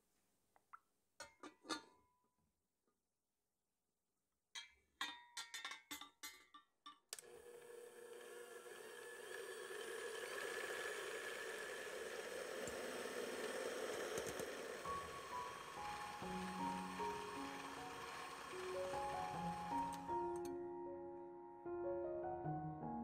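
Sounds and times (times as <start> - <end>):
electric hand mixer whisking eggs: 7.2 - 20.5.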